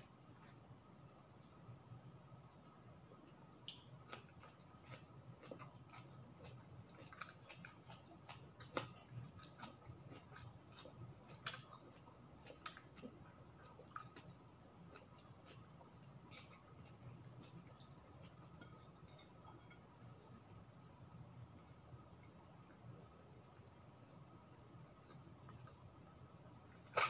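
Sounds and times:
person chewing food: 0:03.7 - 0:19.8.

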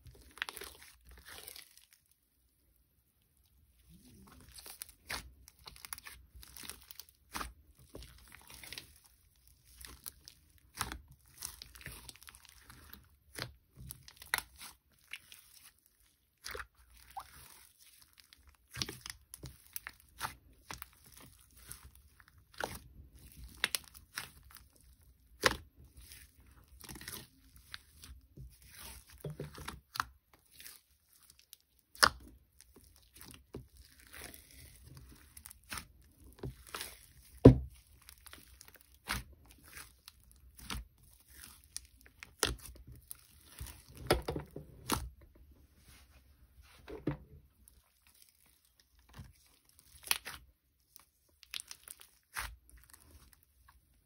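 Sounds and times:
slime popping and crackling: 0:09.6 - 0:44.2, 0:48.0 - 0:53.4.

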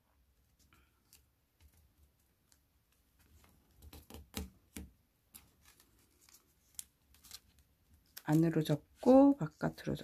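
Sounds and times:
paper rustling and creasing: 0:05.2 - 0:10.0.

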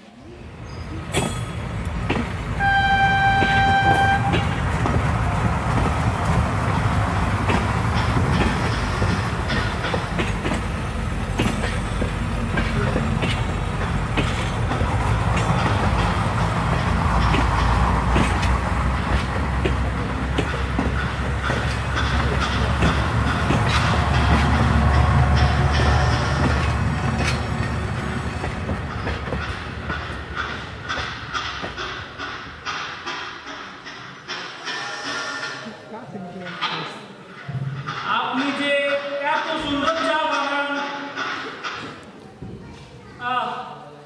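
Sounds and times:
moving train rumble and clickety-clack: 0:00.0 - 0:42.8
train horn blast: 0:02.6 - 0:04.6.

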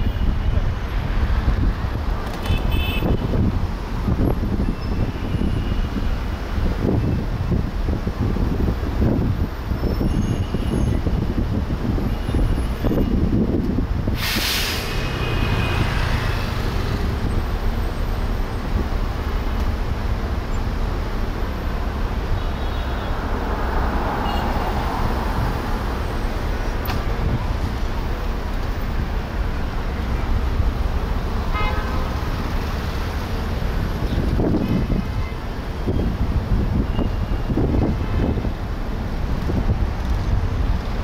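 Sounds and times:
car rumbling in traffic: 0:00.0 - 0:41.0
car horn toots: 0:31.5 - 0:32.0.

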